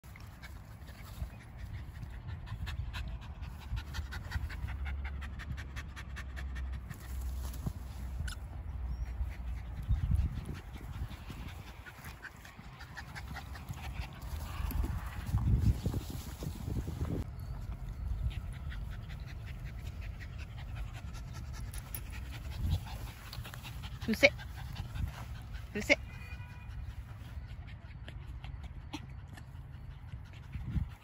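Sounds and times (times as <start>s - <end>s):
small dog panting: 0.1s - 16.3s, 17.8s - 31.0s.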